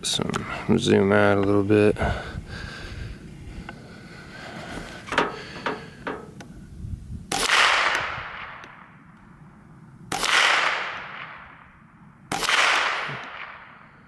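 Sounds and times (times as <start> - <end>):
rifle shots with echo: 7.3 - 9.0, 10.1 - 14.0.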